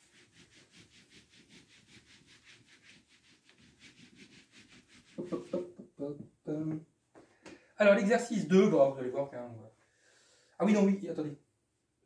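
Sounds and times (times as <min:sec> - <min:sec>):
eraser swishing on board: 0:00.0 - 0:05.7.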